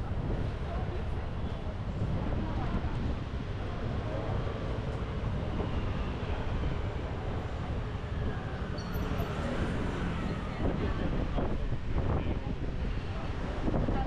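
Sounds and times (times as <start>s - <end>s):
street traffic: 0.0s - 14.0s
wind buffeting microphone: 0.0s - 14.0s.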